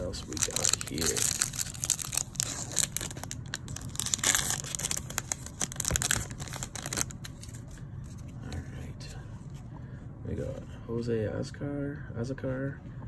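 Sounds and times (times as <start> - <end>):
foil wrapper crinkling: 0.0 - 7.7.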